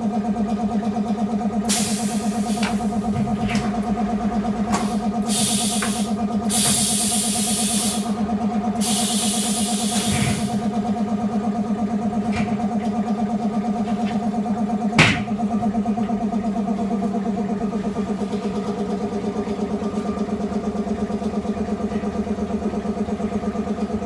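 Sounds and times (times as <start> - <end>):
machine pulsing hum: 0.0 - 24.0
hissing air bursts: 1.7 - 3.0, 4.8 - 8.2, 8.8 - 10.7.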